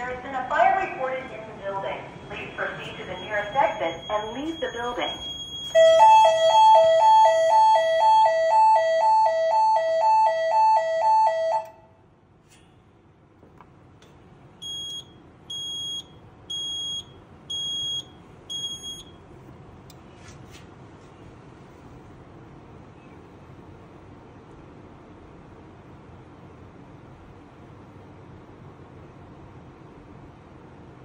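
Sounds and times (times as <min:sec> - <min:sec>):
two-tone fire alarm: 0:02.8 - 0:11.9, 0:14.6 - 0:19.2.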